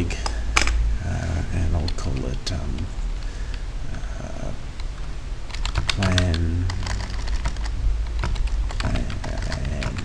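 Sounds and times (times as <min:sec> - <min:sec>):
keyboard typing: 0:04.8 - 0:10.0.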